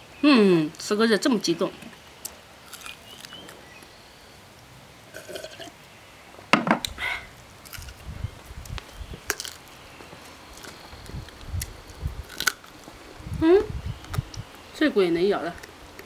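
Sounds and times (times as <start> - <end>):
person chewing: 2.2 - 3.5, 7.6 - 8.0, 9.3 - 9.7, 10.5 - 12.9.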